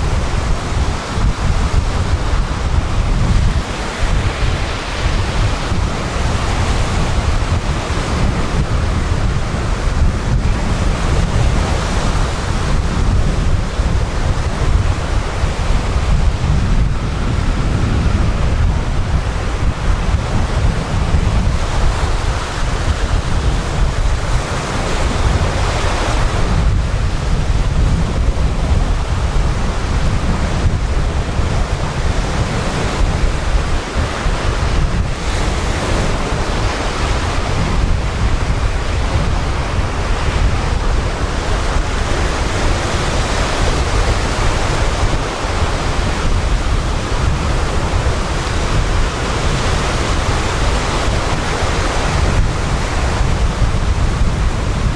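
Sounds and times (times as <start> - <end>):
surf breaking on beach: 0.0 - 54.9
wind buffeting microphone: 0.0 - 54.9.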